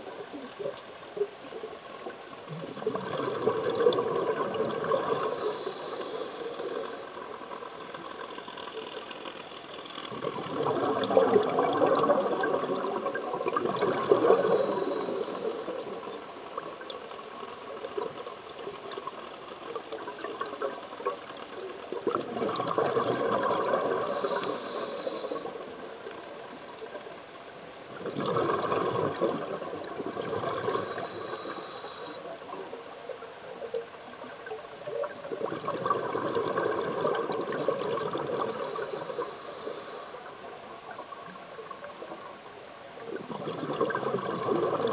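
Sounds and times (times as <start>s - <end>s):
exhale bubbling: 2.5s - 7.1s, 10.1s - 16.0s, 22.1s - 25.6s, 28.0s - 32.2s, 35.3s - 40.2s, 43.2s - 44.9s
regulator hissing inhale: 5.1s - 7.2s, 14.3s - 15.8s, 24.0s - 25.6s, 30.7s - 32.3s, 38.5s - 40.3s.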